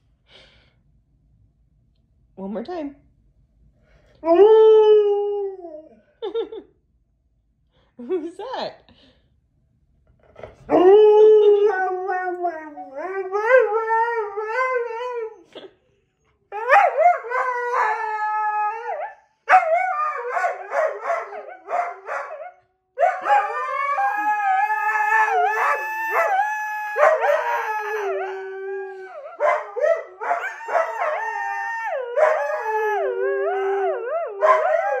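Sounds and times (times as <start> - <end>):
dogs howling: 10.7 - 15.4, 16.5 - 35.0.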